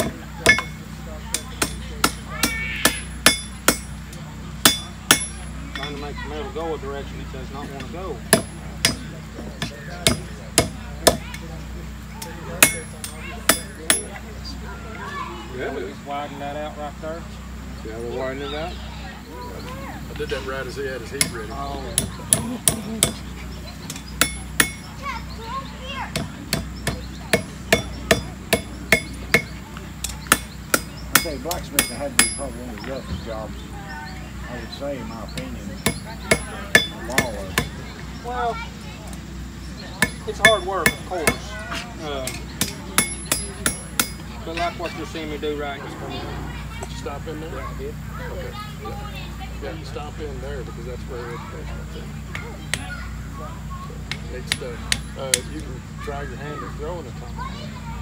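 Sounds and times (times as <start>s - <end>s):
hammer striking iron on anvil: 0.0s - 4.0s, 4.6s - 6.0s, 8.3s - 11.4s, 12.6s - 14.2s, 21.2s - 23.2s, 23.9s - 24.9s, 26.1s - 32.6s, 35.8s - 37.7s, 40.0s - 41.5s, 42.2s - 44.2s.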